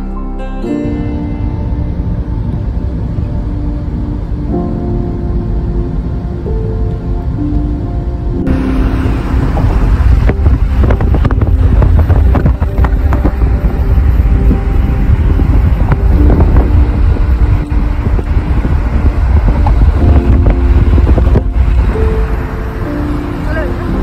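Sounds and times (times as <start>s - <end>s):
low road rumble: 0.0s - 24.0s
wind buffeting microphone: 0.9s - 24.0s.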